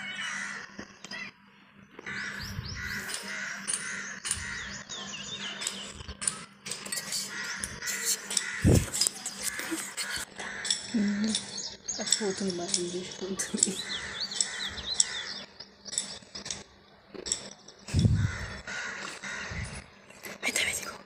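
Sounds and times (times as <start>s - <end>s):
crows cawing: 0.0s - 1.3s, 2.0s - 5.9s, 7.0s - 12.8s, 13.4s - 15.5s, 17.9s - 20.0s.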